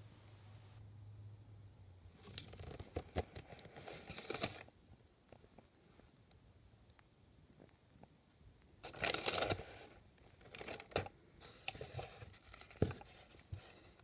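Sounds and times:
cardboard packaging rustling: 2.2s - 4.7s, 8.8s - 14.0s.

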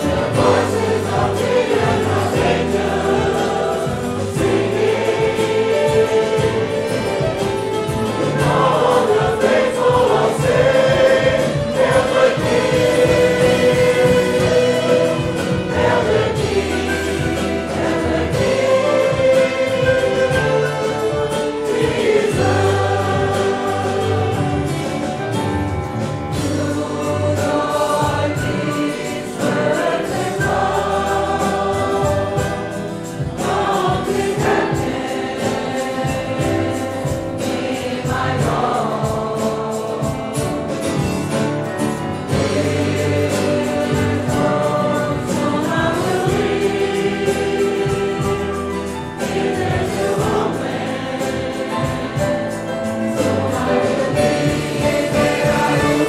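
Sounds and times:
congregation singing a hymn: 0.0s - 56.0s.

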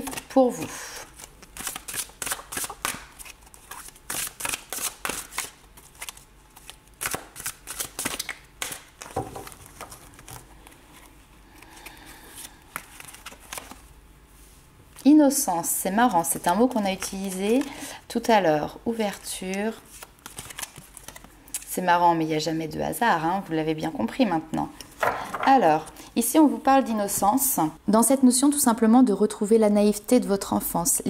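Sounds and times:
cards shuffling: 1.2s - 13.8s, 19.4s - 21.3s.

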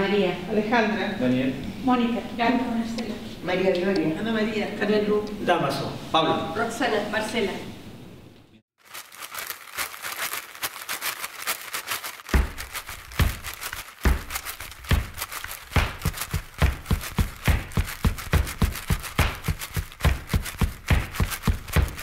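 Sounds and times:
deep drum thumps: 12.4s - 22.0s.

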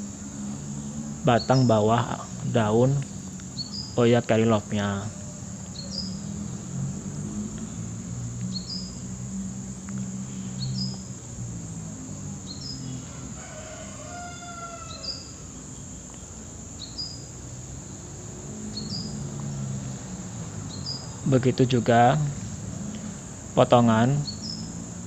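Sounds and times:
bird rising chirp: 0.0s - 22.8s, 23.7s - 25.0s
bird singing: 0.0s - 25.0s
high insect drone: 0.0s - 25.0s.

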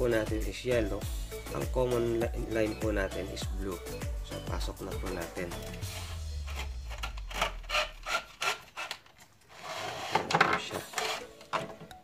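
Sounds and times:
wires scraping through conduit: 5.6s - 11.4s
plastic clicks and knocks: 10.1s - 12.0s.

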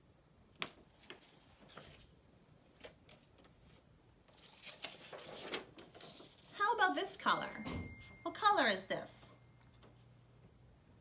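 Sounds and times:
paper rustling and sliding: 0.7s - 6.6s.

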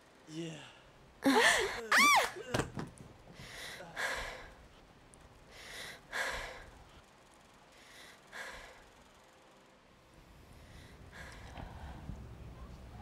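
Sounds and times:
person breathing heavily: 0.7s - 1.8s, 3.3s - 4.7s, 5.5s - 7.0s, 7.8s - 9.0s, 10.5s - 12.2s.

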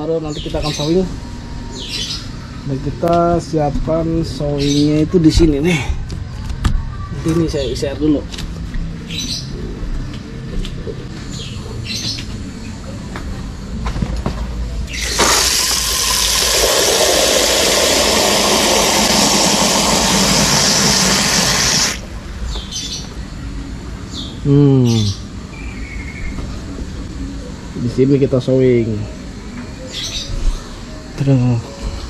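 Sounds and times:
tap water gushing into glass tank: 15.0s - 22.0s.

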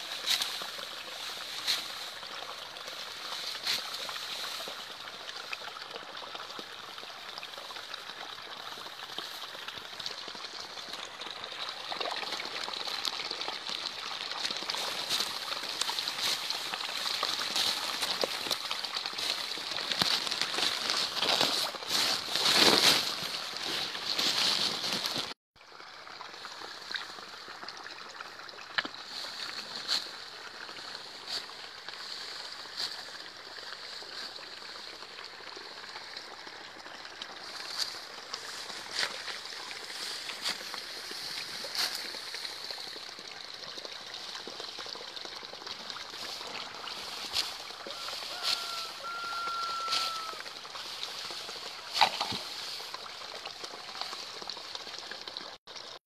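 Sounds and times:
steady outdoor hiss: 0.0s - 5.6s, 37.4s - 44.4s.

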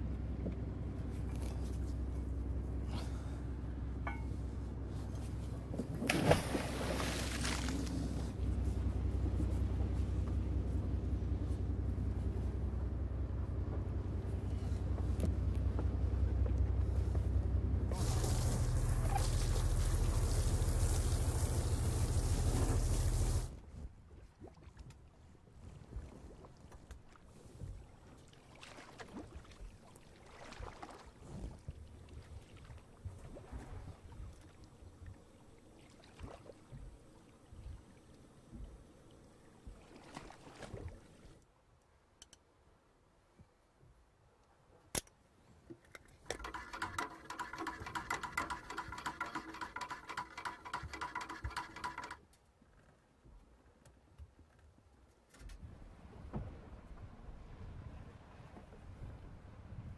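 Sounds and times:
low rumble: 0.0s - 23.6s
water lapping against boat hull: 13.6s - 41.4s, 45.7s - 52.2s
spoon stirring in metal pot: 46.4s - 52.2s.

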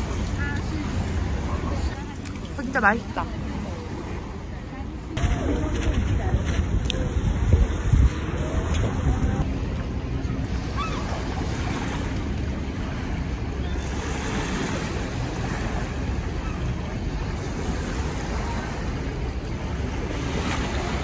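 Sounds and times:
waves lapping on rocky shore: 0.0s - 21.0s
wind buffeting microphone: 0.0s - 21.0s.

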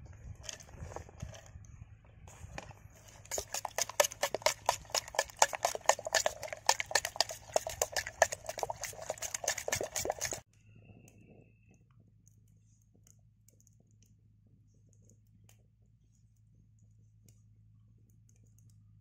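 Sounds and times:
spoon beating batter in pot: 2.6s - 10.4s.

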